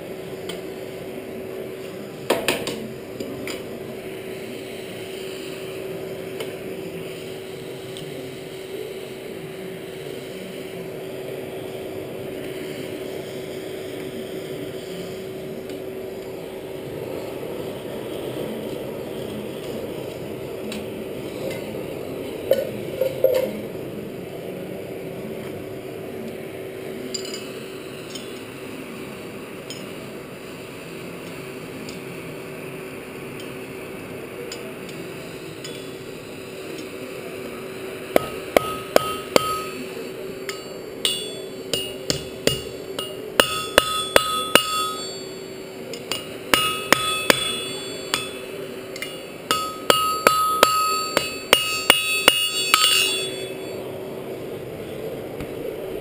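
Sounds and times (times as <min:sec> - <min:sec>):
forge air blower humming: 0:00.0 - 0:23.0, 0:23.6 - 0:56.0
hammer striking rivet on anvil: 0:38.2 - 0:39.8, 0:40.5 - 0:45.4, 0:46.1 - 0:53.7.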